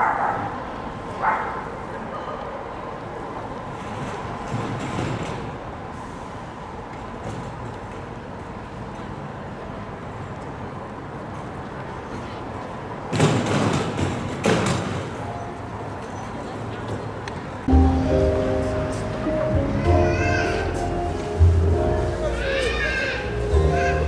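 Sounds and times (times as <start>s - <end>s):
distant traffic hum: 0.0s - 24.0s
faint voices: 15.2s - 24.0s.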